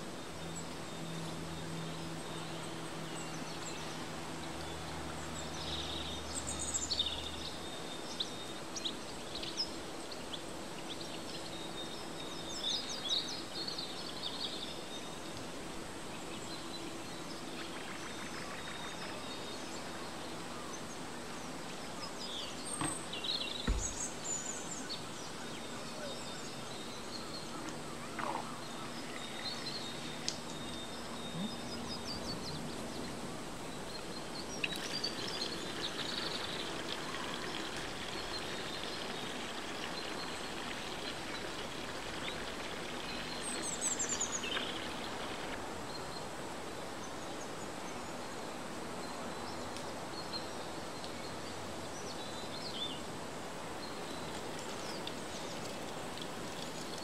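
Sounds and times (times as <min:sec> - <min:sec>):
steady background hiss: 0:00.0 - 0:57.0
bird chirps: 0:22.4 - 0:33.1
dull thump: 0:23.6 - 0:24.0.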